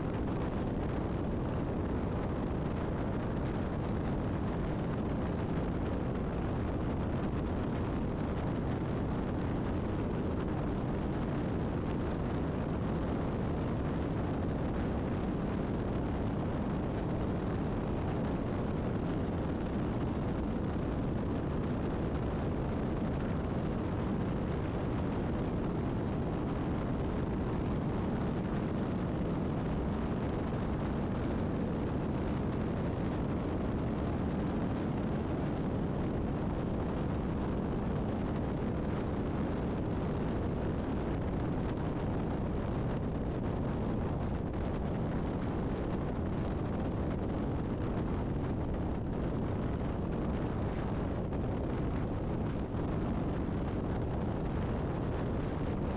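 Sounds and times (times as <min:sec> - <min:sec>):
wind and road noise: 0:00.0 - 0:55.9.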